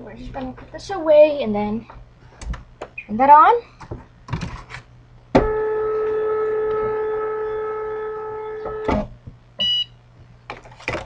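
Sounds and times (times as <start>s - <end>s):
machine motor whine: 5.3s - 9.2s.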